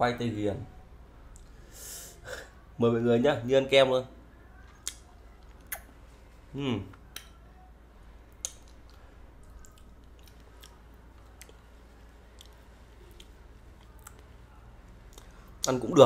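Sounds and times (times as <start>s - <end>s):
low steady hum: 0.0s - 16.0s
lip and tongue smacks eating: 4.8s - 5.9s, 8.3s - 11.7s, 12.3s - 14.3s.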